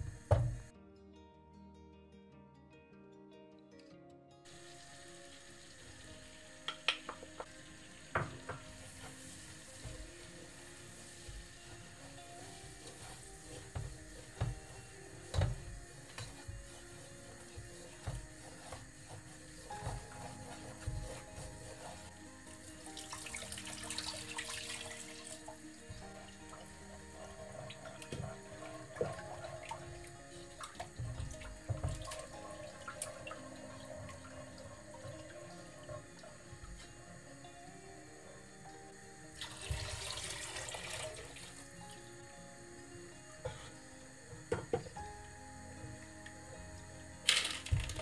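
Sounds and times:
wooden spoon stirring in pot: 0:06.0 - 0:36.0
spoon knocking and scraping pot: 0:06.7 - 0:09.2, 0:12.4 - 0:21.9
milk pouring: 0:22.5 - 0:36.0, 0:39.4 - 0:41.7.

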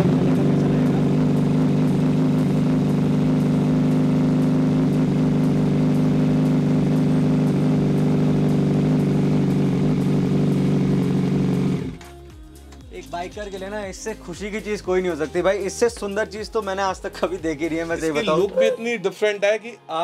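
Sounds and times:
motorcycle engine idling: 0:00.0 - 0:12.1.

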